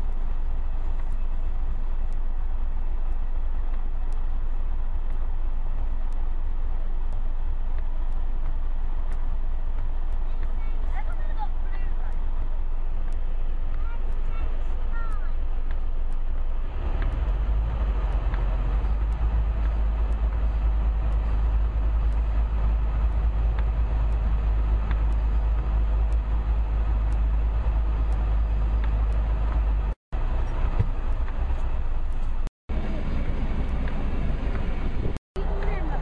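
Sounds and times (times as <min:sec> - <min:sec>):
engines rumbling: 0:00.0 - 0:36.0.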